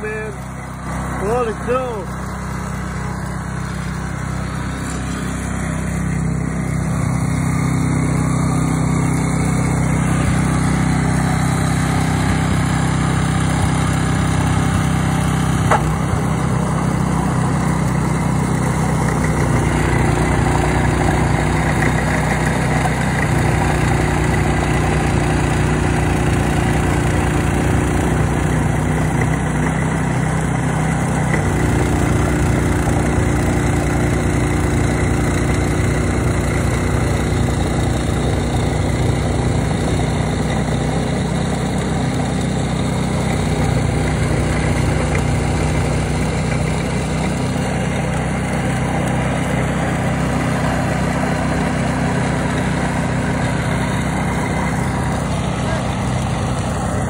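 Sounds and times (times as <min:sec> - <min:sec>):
snowblower engine running: 0:00.0 - 0:57.0.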